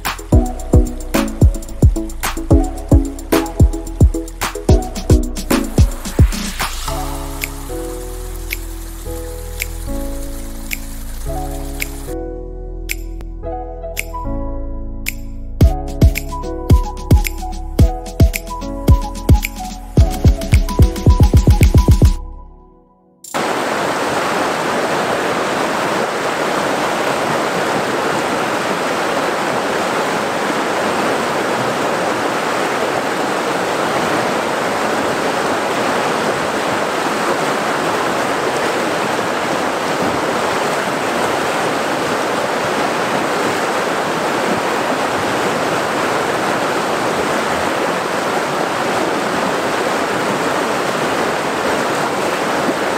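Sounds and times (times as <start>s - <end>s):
river rapids roaring: 23.4s - 52.9s.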